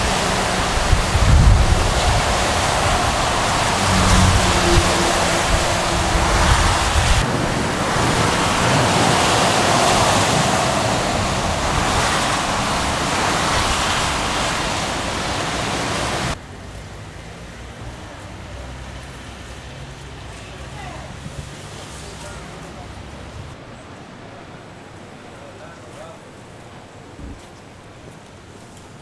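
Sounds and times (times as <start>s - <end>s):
lorries rumbling past: 0.0s - 25.8s
quiet street ambience: 0.0s - 29.0s
tyres hissing on wet road: 0.0s - 29.0s.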